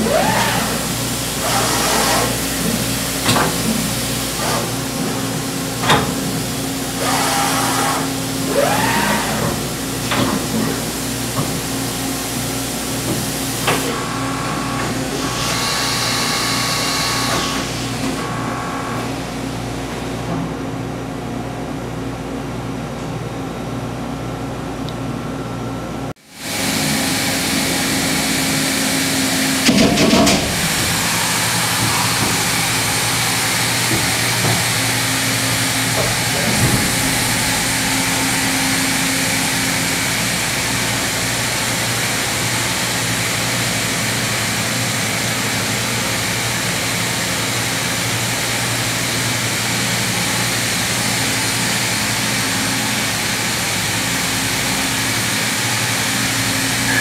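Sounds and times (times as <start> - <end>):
machinery humming: 23.2 - 57.0.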